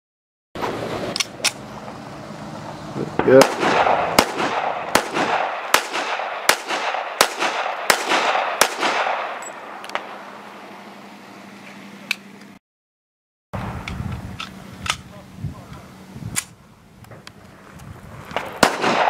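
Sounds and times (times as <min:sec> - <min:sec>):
handgun shots with echo: 0:03.2 - 0:10.1, 0:18.4 - 0:19.0.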